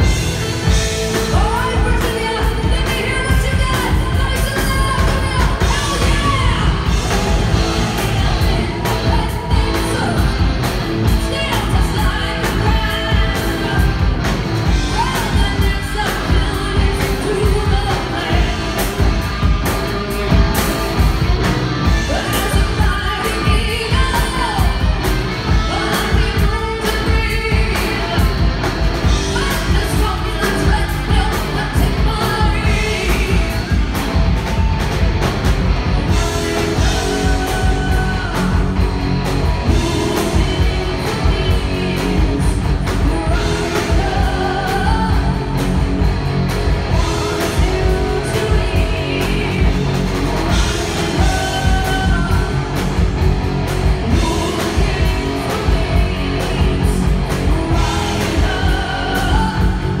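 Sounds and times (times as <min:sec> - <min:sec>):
woman singing: 0:00.0 - 0:19.6, 0:21.8 - 0:34.6, 0:36.0 - 0:38.9, 0:39.5 - 0:45.9, 0:46.8 - 0:52.9, 0:54.0 - 1:00.0
heavy metal band playing: 0:00.0 - 1:00.0.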